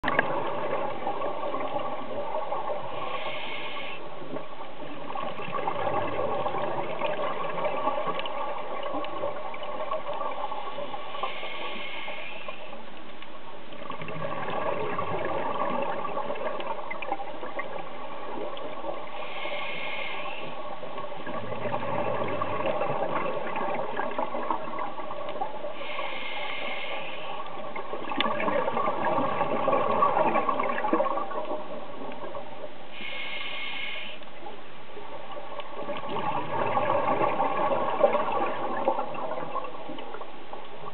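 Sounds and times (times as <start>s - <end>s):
exhaled bubbles rushing: 0.0s - 3.0s, 4.3s - 10.9s, 13.8s - 19.2s, 20.6s - 25.7s, 27.4s - 32.6s, 35.3s - 40.9s
underwater water noise: 0.0s - 40.9s
regulator hiss: 10.8s - 12.8s, 19.0s - 20.7s, 25.7s - 27.7s, 32.9s - 34.4s.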